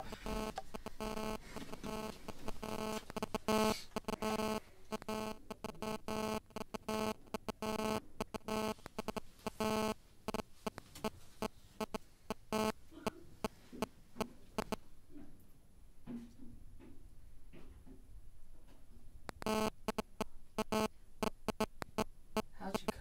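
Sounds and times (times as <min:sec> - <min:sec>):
electronic buzzer pulses: 0:00.0 - 0:12.8, 0:14.6 - 0:14.8, 0:19.3 - 0:22.1.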